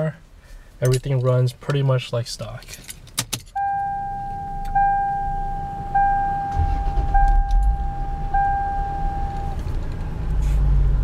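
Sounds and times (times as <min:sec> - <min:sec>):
dashboard warning chime: 0:03.6 - 0:09.7
car engine starting and idling: 0:03.6 - 0:11.0.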